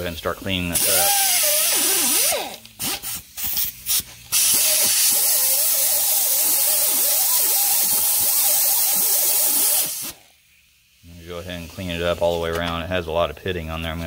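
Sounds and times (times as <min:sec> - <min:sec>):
air die grinder whining: 0:00.8 - 0:03.2, 0:04.3 - 0:10.2
air hiss: 0:00.8 - 0:12.5.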